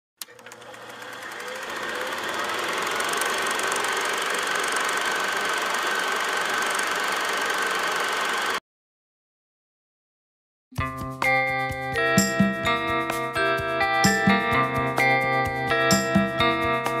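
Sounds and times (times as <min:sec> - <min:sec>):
film projector whirring and clicking: 0:00.2 - 0:08.6.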